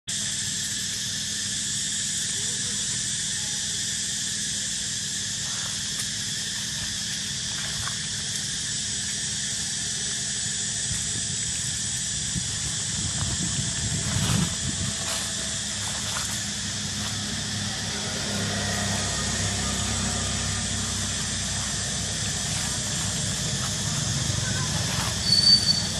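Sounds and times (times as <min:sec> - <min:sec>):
insect chorus drone: 0:00.1 - 0:25.9
low rumble: 0:10.9 - 0:25.9.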